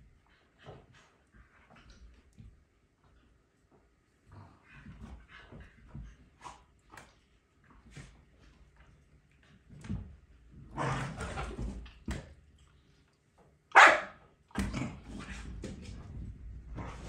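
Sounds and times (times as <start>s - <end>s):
dogs play-fighting: 0.0s - 12.4s, 13.8s - 17.0s
dog barking: 13.7s - 14.2s.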